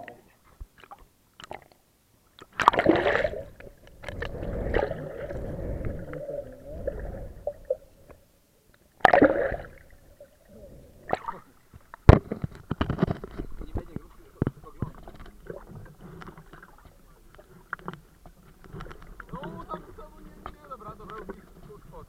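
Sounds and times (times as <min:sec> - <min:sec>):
water splashing: 0:02.4 - 0:08.2, 0:09.0 - 0:22.0
muffled underwater gurgling: 0:02.8 - 0:08.1.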